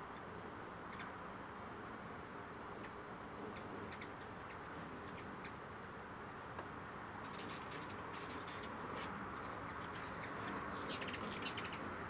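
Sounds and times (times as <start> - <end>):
high-pitched insect trilling: 0.0 - 12.0
hummingbird chirps: 0.9 - 1.1, 2.8 - 5.7, 7.2 - 12.0.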